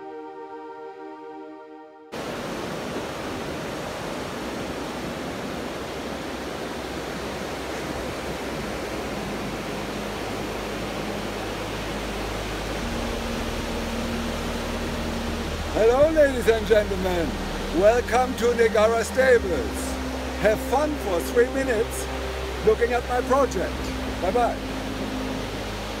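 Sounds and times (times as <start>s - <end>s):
soft ambient music: 0.0s - 3.4s, 4.0s - 26.0s
ocean surf rushing: 2.1s - 26.0s.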